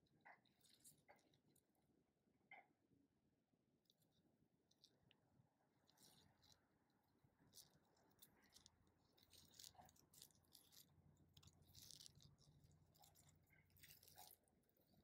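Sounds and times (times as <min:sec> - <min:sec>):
tortoise chewing crunching: 0:05.7 - 0:15.0.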